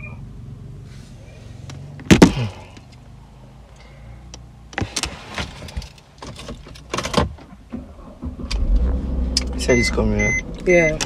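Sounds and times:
low hum: 0:07.7 - 0:11.0.

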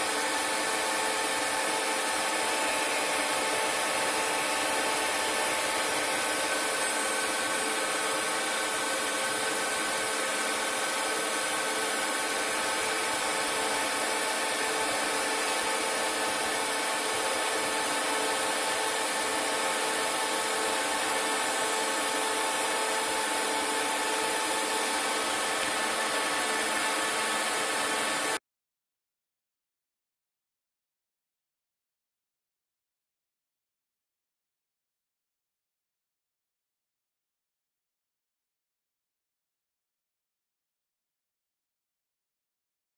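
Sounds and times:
lathe cutting hiss: 0:00.0 - 0:28.4
machine whine: 0:00.0 - 0:28.4.

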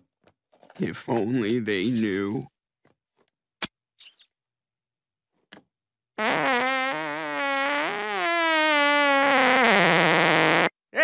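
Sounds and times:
cartoon fart: 0:06.2 - 0:10.7.

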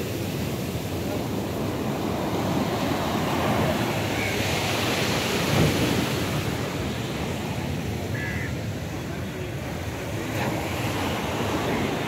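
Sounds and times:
sea surf breaking on beach: 0:00.0 - 0:12.0.

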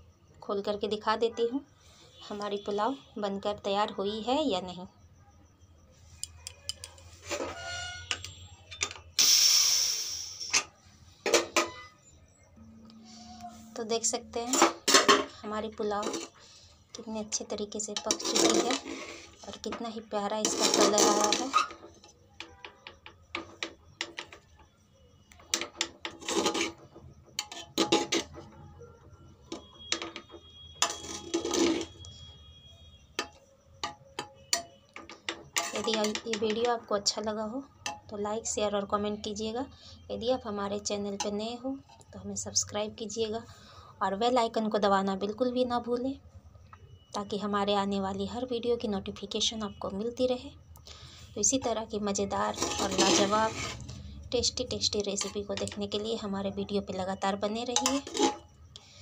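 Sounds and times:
metal spoon scraping a pot: 0:06.2 - 0:09.0, 0:13.0 - 0:16.4, 0:17.8 - 0:19.8, 0:20.4 - 0:22.7, 0:25.5 - 0:28.5, 0:29.5 - 0:32.2, 0:33.2 - 0:36.7, 0:52.3 - 0:55.8, 0:57.7 - 0:58.5
steam hissing: 0:09.2 - 0:10.6.

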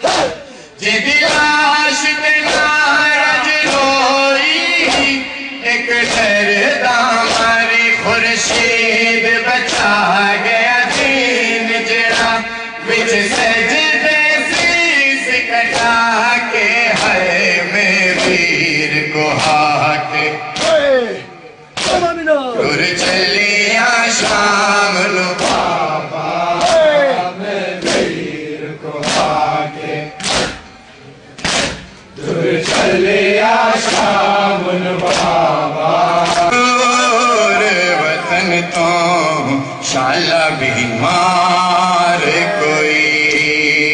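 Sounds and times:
sharp slaps: 0:00.0 - 0:00.4, 0:01.2 - 0:01.6, 0:02.4 - 0:02.9, 0:03.5 - 0:06.6, 0:07.2 - 0:08.9, 0:09.6 - 0:12.5, 0:13.1 - 0:21.1, 0:21.7 - 0:22.2, 0:22.9 - 0:23.4, 0:24.1 - 0:24.7, 0:25.3 - 0:25.9, 0:26.5 - 0:27.2, 0:27.8 - 0:28.3, 0:29.0 - 0:29.5, 0:30.1 - 0:30.8, 0:31.4 - 0:33.1, 0:33.7 - 0:34.3, 0:35.0 - 0:35.5, 0:36.1 - 0:36.6
man chanting a lament: 0:00.0 - 0:30.2, 0:32.3 - 0:43.9
sharp beat: 0:18.1 - 0:23.4.

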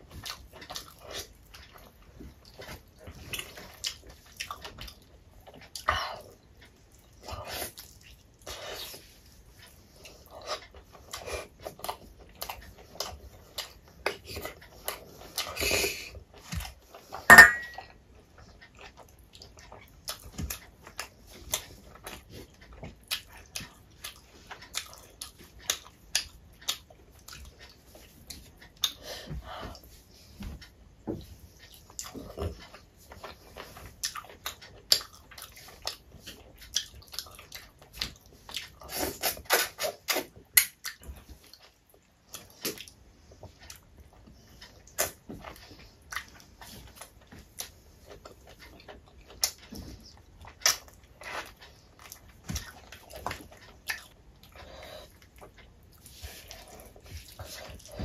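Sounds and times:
wet chewing and lip smacks: 0:00.1 - 0:15.6, 0:18.2 - 0:29.0, 0:31.5 - 0:58.0.

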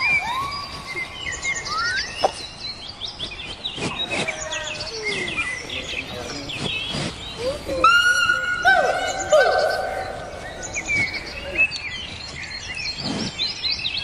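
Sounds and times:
animal chirps and whistles: 0:00.0 - 0:02.4
outdoor background: 0:00.0 - 0:14.0.

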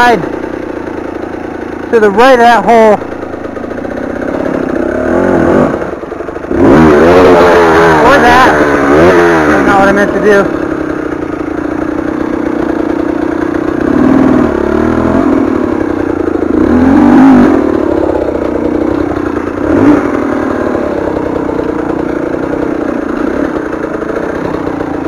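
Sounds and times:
two-stroke engine at low revs: 0:00.0 - 0:25.0.

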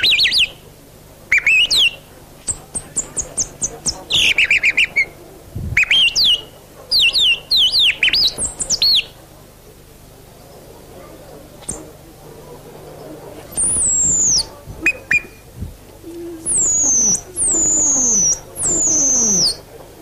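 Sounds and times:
man whistling bird calls: 0:13.6 - 0:15.4, 0:16.4 - 0:19.6.

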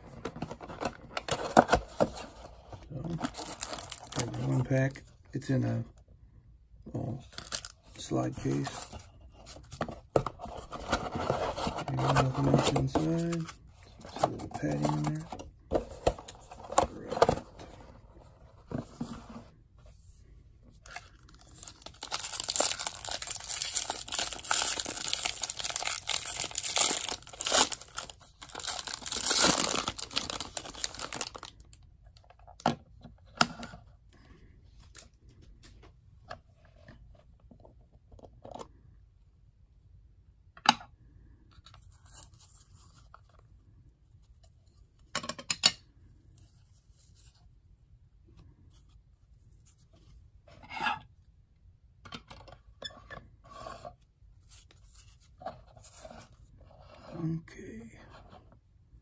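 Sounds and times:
wrapper tearing and crinkling: 0:03.2 - 0:04.3, 0:21.2 - 0:31.6.

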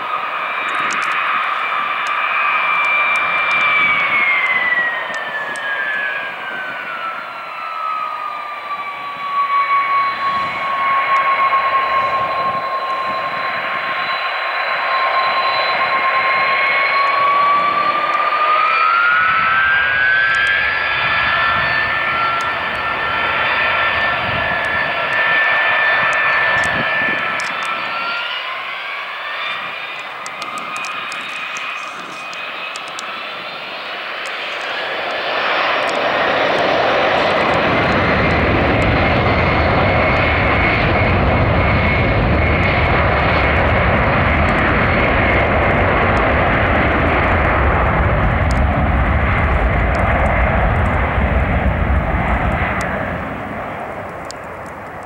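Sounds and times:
jet engines whining: 0:00.0 - 0:55.0
deep engine rumble: 0:37.0 - 0:55.0.

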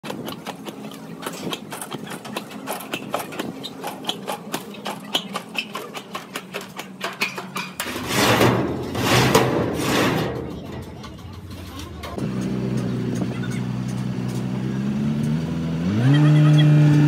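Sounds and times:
loud low engine rumble: 0:07.8 - 0:17.0.

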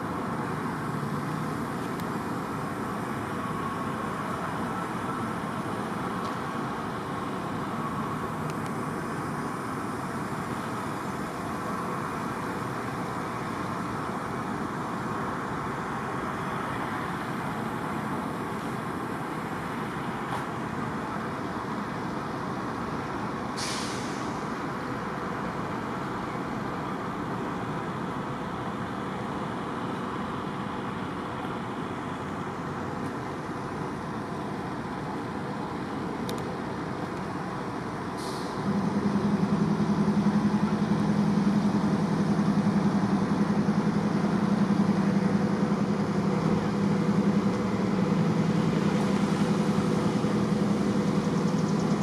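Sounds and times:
low train noise: 0:00.0 - 0:52.0
sharp hiss of air: 0:23.5 - 0:24.5, 0:38.1 - 0:38.7.

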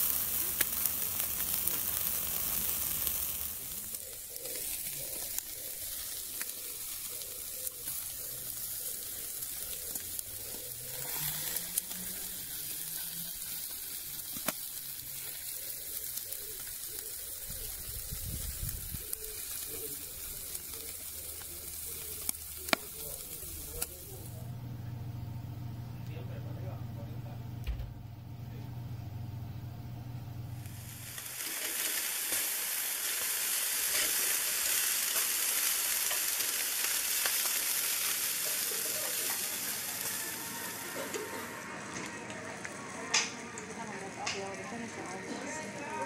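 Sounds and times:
sharp pops and crackles: 0:00.0 - 0:24.3, 0:30.6 - 0:39.8, 0:42.2 - 0:44.5
meat sizzling on a grill: 0:00.0 - 0:24.4, 0:30.6 - 0:46.0.

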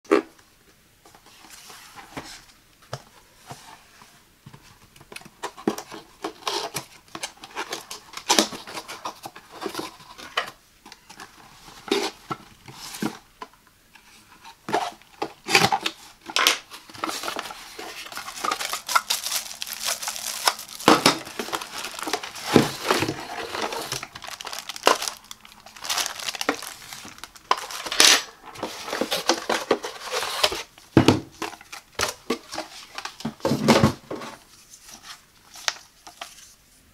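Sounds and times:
plastic wrapping crinkling: 0:14.7 - 0:30.7.

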